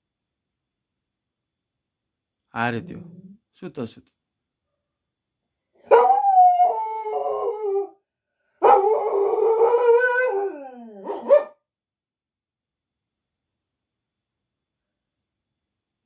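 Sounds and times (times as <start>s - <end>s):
dog howling: 5.9s - 8.0s, 8.6s - 11.6s.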